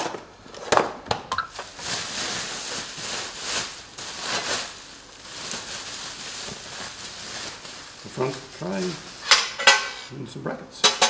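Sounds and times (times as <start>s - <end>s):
bubble wrap and plastic crinkling: 1.4s - 10.0s.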